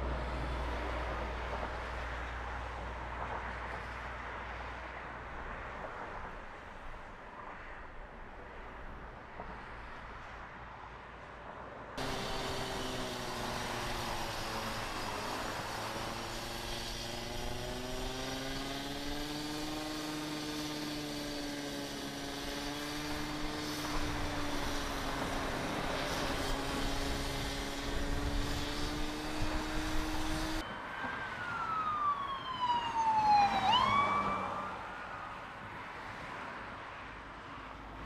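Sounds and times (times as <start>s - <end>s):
traffic passing: 0.0s - 38.0s
power tool humming: 12.0s - 30.6s
siren-like tone: 30.6s - 35.4s.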